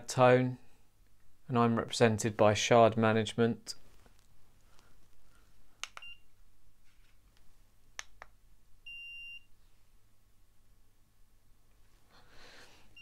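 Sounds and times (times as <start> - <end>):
thermometer beeping: 8.9 - 9.5.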